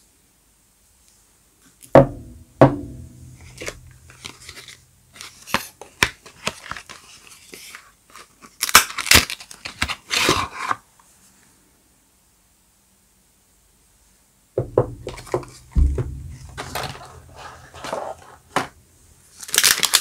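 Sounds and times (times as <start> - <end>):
cardboard crackling and rustling: 3.4 - 10.8, 15.1 - 20.0
cardboard tearing and crinkling: 3.5 - 10.8, 19.4 - 20.0.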